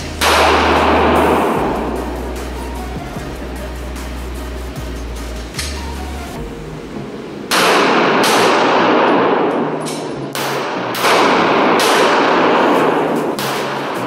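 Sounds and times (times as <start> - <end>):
echoing handgun shots: 0.0 - 2.6, 7.5 - 14.0.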